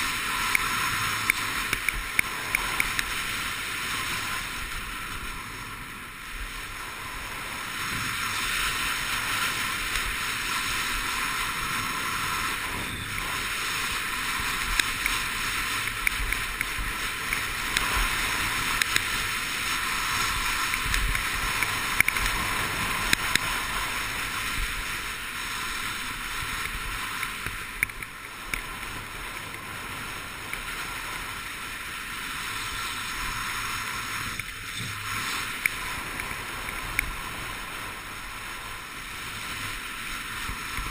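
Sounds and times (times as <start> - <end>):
skis scraping over snow: 0.0 - 40.9
sharp ticks: 0.4 - 3.1, 14.6 - 19.2, 20.6 - 23.5, 26.6 - 29.6.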